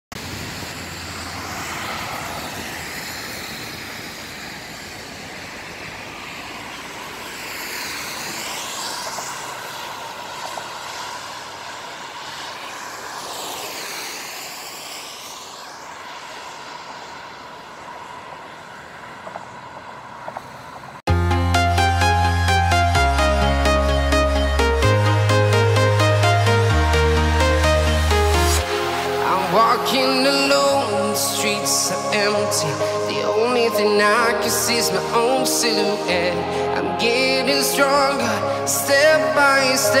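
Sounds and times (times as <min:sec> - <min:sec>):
vehicles passing close: 0:00.1 - 0:40.0
tyre hiss on wet road: 0:00.2 - 0:19.3, 0:19.9 - 0:21.0, 0:28.6 - 0:36.7.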